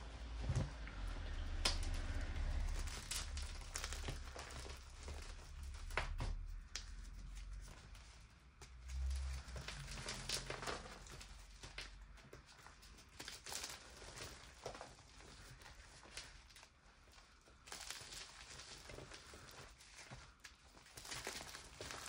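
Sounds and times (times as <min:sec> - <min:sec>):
low rumble: 0:00.0 - 0:12.2.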